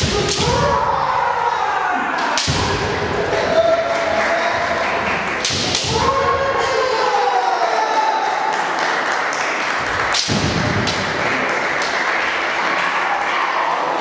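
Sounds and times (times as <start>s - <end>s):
fighters shouting: 0.0s - 4.8s, 5.5s - 8.5s
bamboo swords cracking together: 5.4s - 6.1s, 10.1s - 11.0s.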